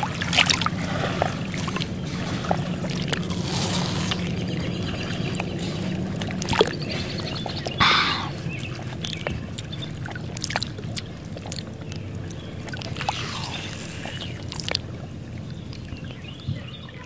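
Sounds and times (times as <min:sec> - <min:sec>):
water sloshing and splashing: 0:00.0 - 0:17.0.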